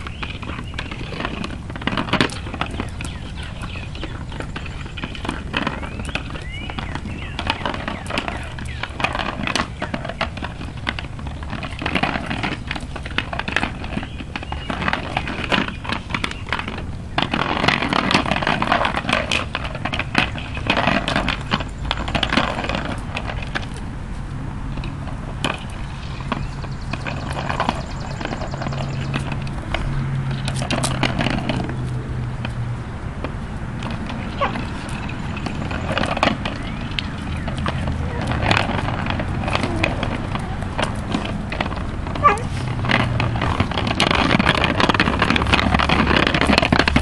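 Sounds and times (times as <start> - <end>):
dog claws clicking on pavement: 0.0 - 47.0
plastic toy clicking and rattling: 33.2 - 47.0.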